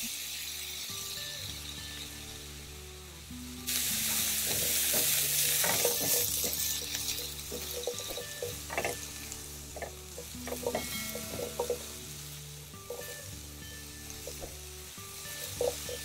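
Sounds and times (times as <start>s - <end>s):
mushrooms sizzling in oil: 0.0s - 16.0s
tongs clicking and scraping pan: 3.7s - 16.0s.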